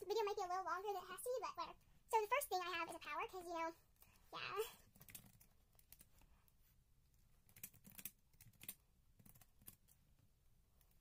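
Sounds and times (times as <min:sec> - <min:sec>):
typing on computer keyboard: 0:04.9 - 0:06.2, 0:07.4 - 0:10.0.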